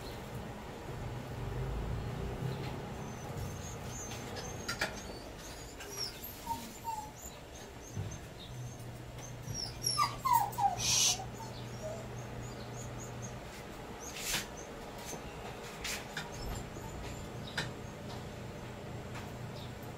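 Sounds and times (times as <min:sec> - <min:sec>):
dog whining: 0:02.9 - 0:15.3, 0:16.0 - 0:18.1.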